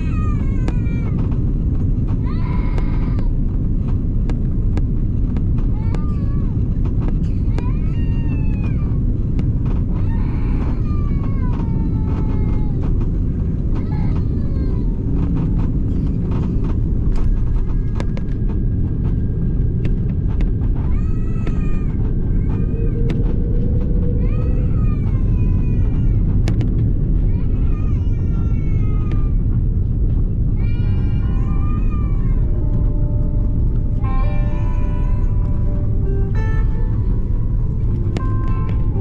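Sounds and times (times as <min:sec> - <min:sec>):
small child wailing: 0:00.0 - 0:01.4, 0:02.1 - 0:03.5, 0:05.6 - 0:18.7, 0:20.3 - 0:29.8, 0:30.6 - 0:37.2
airliner cabin rumble: 0:00.0 - 0:39.0.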